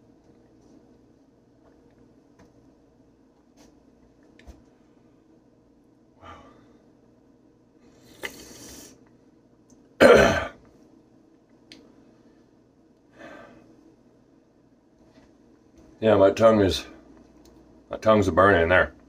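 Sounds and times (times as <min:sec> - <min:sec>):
man breathing heavily: 0:06.2 - 0:06.9, 0:13.1 - 0:13.7
man coughing: 0:10.0 - 0:10.6.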